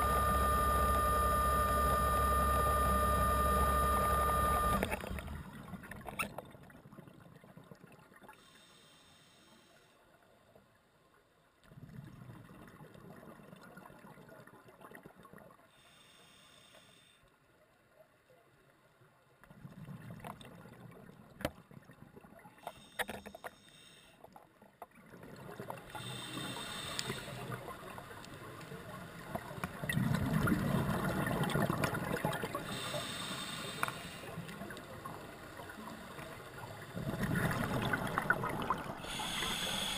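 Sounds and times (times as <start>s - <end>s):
hissing regulator inhalations: 25.9s - 27.6s, 32.6s - 34.6s, 39.0s - 39.9s.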